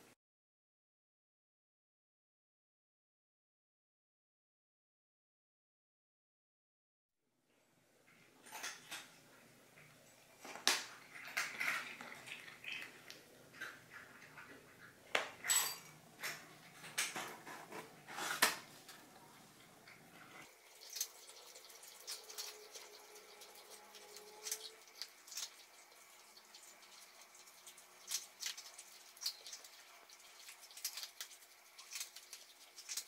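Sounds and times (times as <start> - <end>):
cat crunching dry kibble: 30.4 - 33.0.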